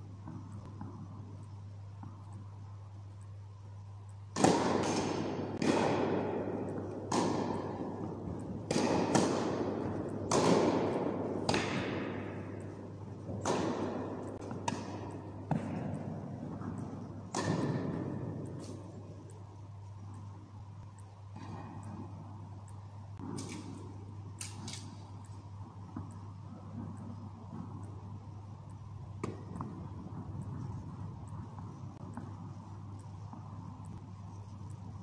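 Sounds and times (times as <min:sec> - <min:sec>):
steady low hum: 0:00.0 - 0:35.0
tennis ball hits and bounces: 0:04.3 - 0:19.0, 0:29.2 - 0:32.3.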